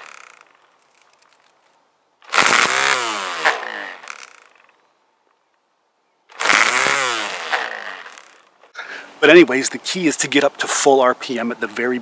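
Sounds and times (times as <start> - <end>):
string trimmer motor whirring: 0.0 - 1.3, 2.2 - 4.8, 6.3 - 8.6.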